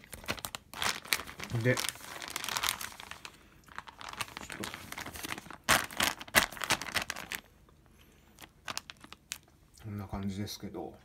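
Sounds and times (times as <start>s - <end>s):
plastic bag crinkling: 0.0s - 7.5s, 8.3s - 9.6s.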